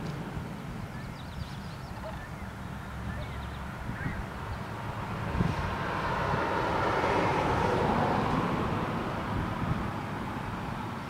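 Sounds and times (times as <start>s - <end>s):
distant engine rushing past: 0.0s - 11.0s.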